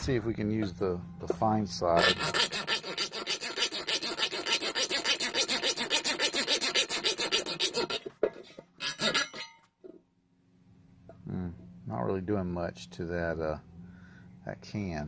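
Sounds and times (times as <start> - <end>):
saw rasping on tin can: 2.0 - 9.6.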